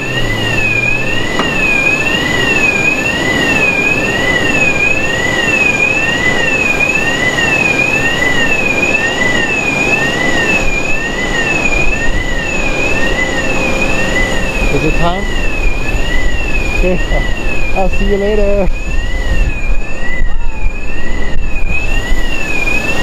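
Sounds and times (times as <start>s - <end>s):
aircraft and apron equipment noise: 0.0s - 23.0s
two-tone electronic warning siren: 0.0s - 23.0s.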